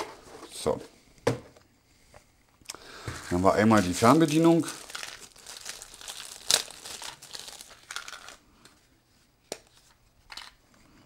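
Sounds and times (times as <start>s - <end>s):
plastic bag crinkling: 3.2s - 8.4s.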